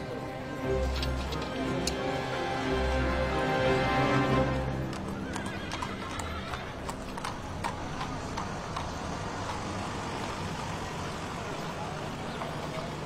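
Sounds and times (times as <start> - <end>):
background music: 0.0 - 8.5
horse hooves clip-clopping: 0.8 - 2.0, 4.6 - 13.0
horse whinny: 4.9 - 7.0.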